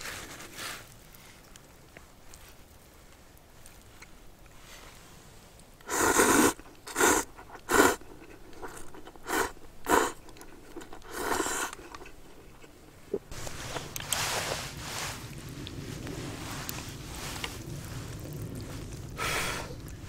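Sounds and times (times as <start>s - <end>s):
person slurping noodles: 5.9s - 12.4s.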